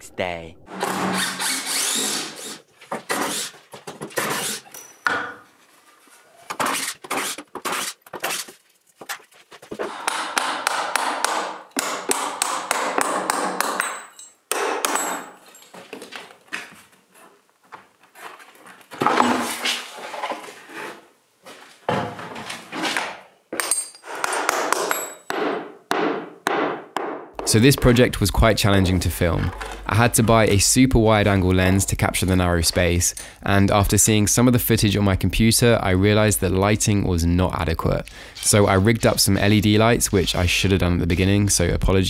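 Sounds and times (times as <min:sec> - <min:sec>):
hand tools knocking: 0:23.6 - 0:28.2.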